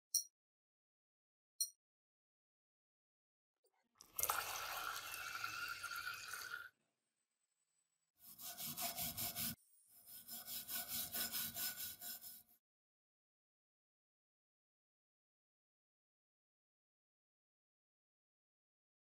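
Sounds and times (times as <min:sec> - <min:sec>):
stiff brush scrubbing metal: 0:08.2 - 0:12.5.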